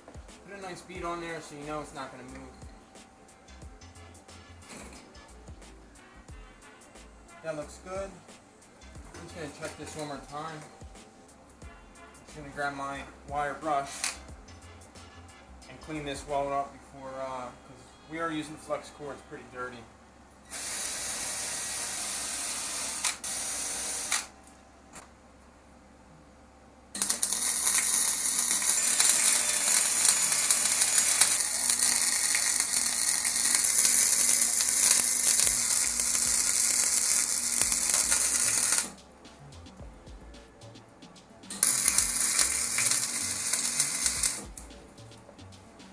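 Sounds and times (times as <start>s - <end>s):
welder arc crackling sizzle: 0.0s - 17.5s, 19.7s - 25.1s, 26.9s - 40.6s, 41.2s - 45.9s
drill wire brush on steel: 12.0s - 16.2s, 20.5s - 24.3s, 27.0s - 39.7s, 41.3s - 45.9s.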